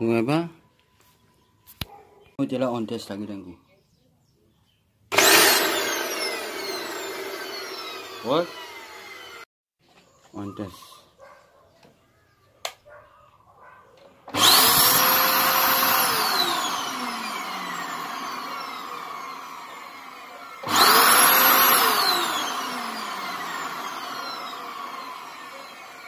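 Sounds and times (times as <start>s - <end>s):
vacuum cleaner motor whine: 5.1s - 9.5s, 14.3s - 26.0s.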